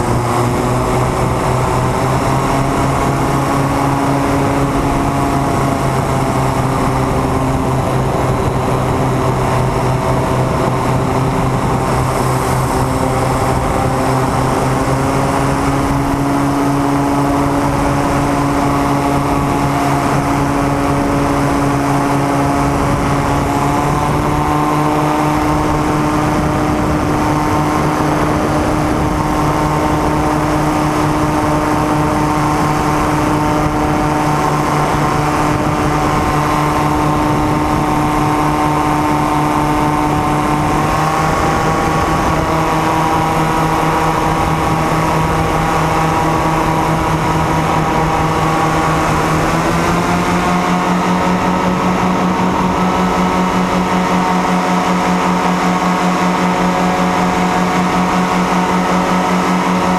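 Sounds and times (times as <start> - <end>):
propeller aircraft engine droning: 0.0 - 59.9.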